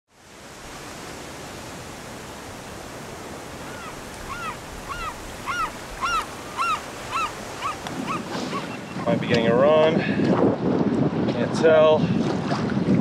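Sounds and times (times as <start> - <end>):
ocean surf: 0.1 - 10.4
bird whistling call: 3.7 - 9.1.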